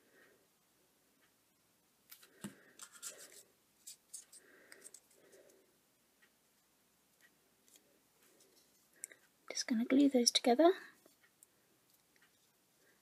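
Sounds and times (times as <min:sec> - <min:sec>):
cardstock rustling and scraping: 0:02.1 - 0:04.4.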